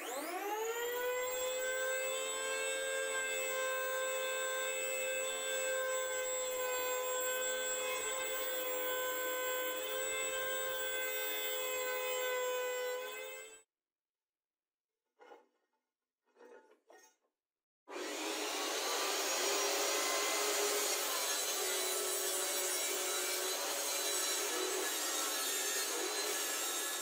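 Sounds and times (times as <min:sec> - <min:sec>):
electric planer whining: 0:00.0 - 0:10.7, 0:17.9 - 0:27.0
board fed across cutter: 0:17.9 - 0:27.0.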